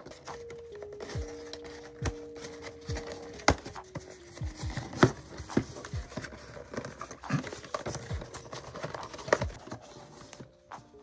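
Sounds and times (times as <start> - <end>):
cardboard box taps and knocks: 3.0 - 9.7.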